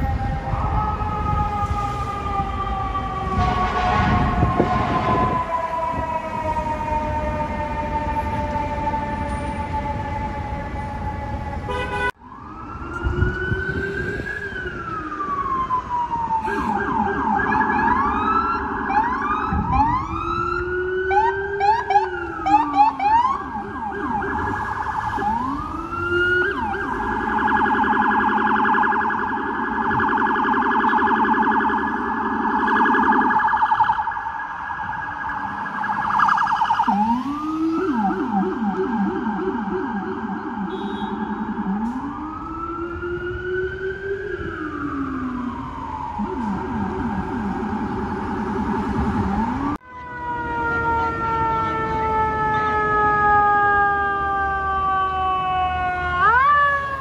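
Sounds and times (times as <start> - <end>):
emergency vehicle sirens: 0.0 - 57.0
horn blast: 3.4 - 5.4.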